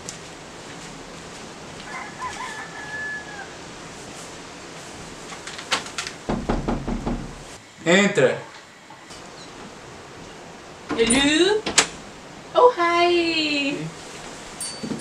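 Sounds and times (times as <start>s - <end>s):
outdoor hiss: 0.0s - 15.0s
rooster crowing: 1.8s - 3.8s.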